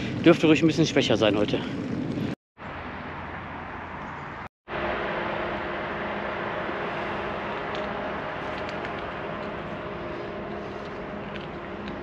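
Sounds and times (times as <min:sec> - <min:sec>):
outdoor background noise: 0:00.0 - 0:12.0
low drone of held tones: 0:04.7 - 0:12.0.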